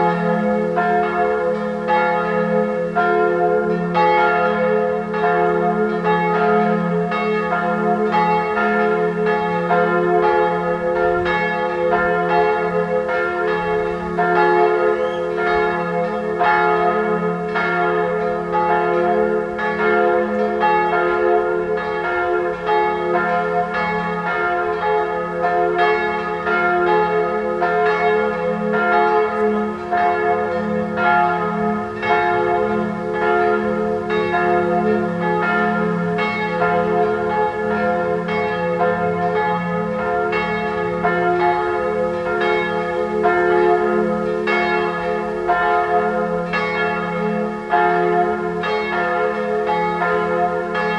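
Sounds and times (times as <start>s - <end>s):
church bells ringing: 0.0s - 50.9s.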